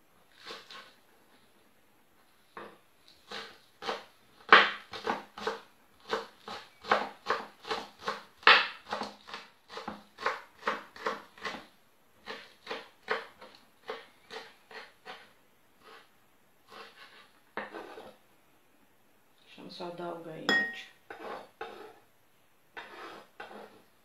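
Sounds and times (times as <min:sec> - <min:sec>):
knife chopping on wooden board: 0:03.3 - 0:11.6, 0:12.2 - 0:15.2.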